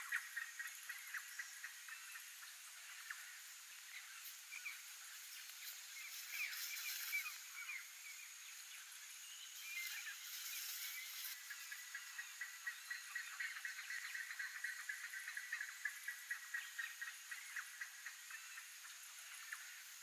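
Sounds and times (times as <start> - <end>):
high insect hum: 0.0 - 20.0
short chirping calls: 3.0 - 14.2.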